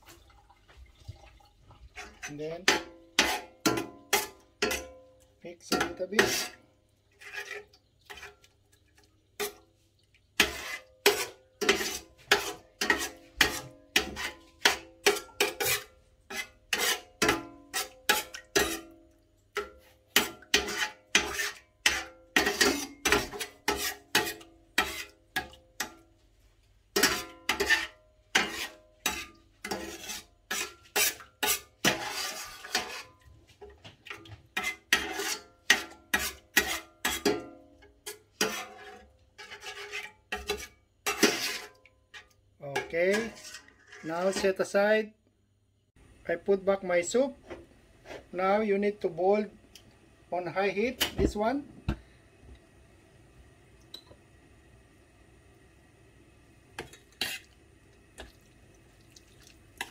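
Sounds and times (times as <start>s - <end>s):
metal spoon scraping a steel pan: 2.0s - 5.0s, 5.6s - 8.4s, 10.4s - 19.0s, 19.6s - 26.0s, 27.0s - 33.2s, 34.6s - 44.7s, 56.8s - 57.5s.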